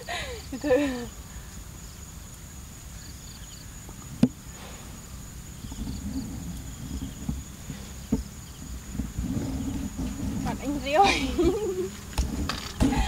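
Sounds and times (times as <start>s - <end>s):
insects chirping: 0.0s - 13.0s
steady high-pitched whine: 0.0s - 13.0s.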